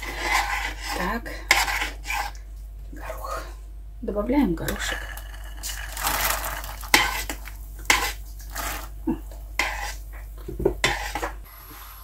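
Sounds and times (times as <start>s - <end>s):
metal spoon stirring and clinking: 4.7s - 8.8s
peas splashing into soup: 4.7s - 8.9s.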